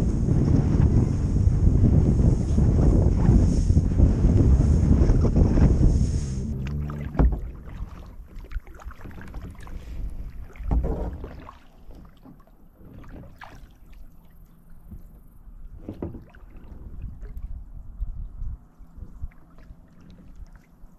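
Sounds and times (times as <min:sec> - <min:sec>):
low rumble: 0:00.0 - 0:08.2
paddle strokes: 0:00.0 - 0:17.6
water lapping at kayak hull: 0:00.0 - 0:20.9.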